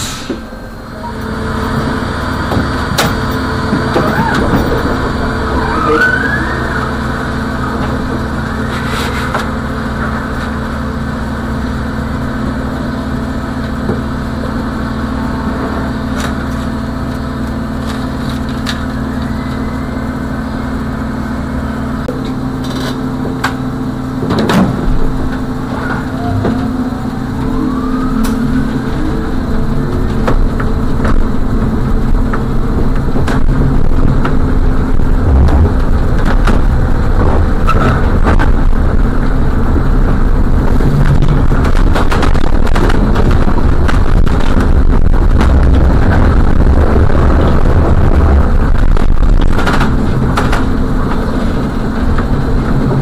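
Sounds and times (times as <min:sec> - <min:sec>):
trolleybus electrical hum: 0:00.0 - 0:53.0
rising whines: 0:00.3 - 0:22.1, 0:23.8 - 0:53.0
knocks and rattles: 0:02.5 - 0:05.4, 0:24.2 - 0:53.0.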